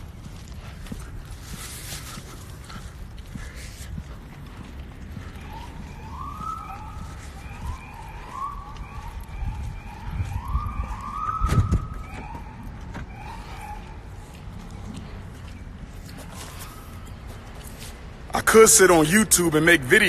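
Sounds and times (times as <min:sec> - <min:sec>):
siren rising sweeps: 0:05.2 - 0:14.6.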